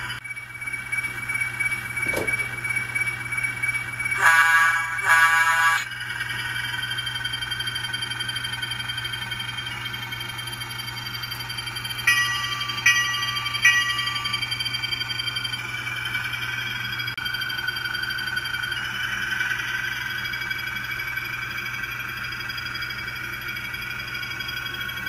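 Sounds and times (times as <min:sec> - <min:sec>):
train horn toots: 0:04.2 - 0:05.9.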